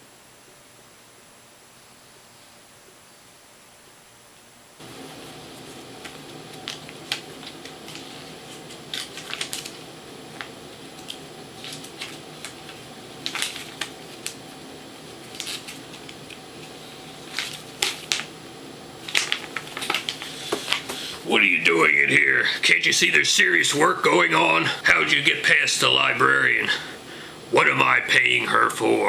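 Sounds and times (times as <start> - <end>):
steady low hum: 0.0 - 29.0
paper pages crackling and rustling: 4.8 - 18.4, 19.0 - 21.3.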